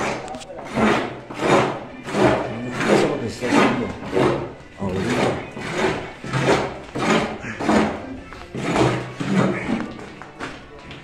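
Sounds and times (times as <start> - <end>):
rhythmic scraping: 0.0 - 10.7.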